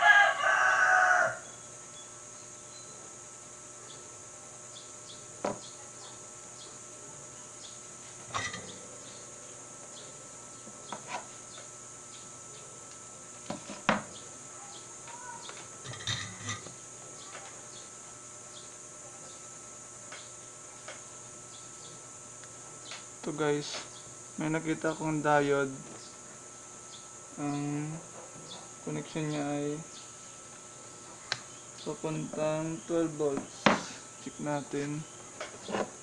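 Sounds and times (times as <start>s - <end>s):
insects buzzing: 0.0s - 36.0s.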